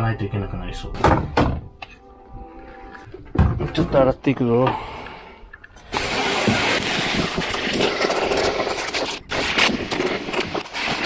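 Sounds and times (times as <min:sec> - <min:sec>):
pressure washer spraying: 0:05.9 - 0:11.0.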